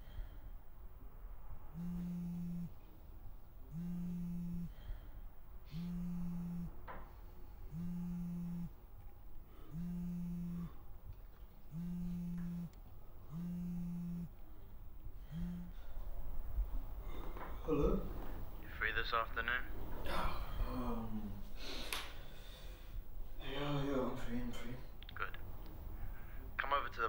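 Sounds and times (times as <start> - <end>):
phone vibrating buzz: 1.7 - 2.9, 3.7 - 5.1, 5.7 - 8.8, 9.5 - 10.9, 11.7 - 14.4, 15.2 - 16.1.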